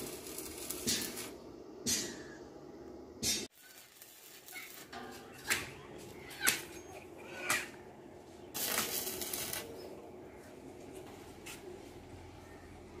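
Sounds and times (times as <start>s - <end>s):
welding arc crackling and hissing: 0.0s - 1.4s, 3.2s - 4.9s, 8.6s - 9.8s.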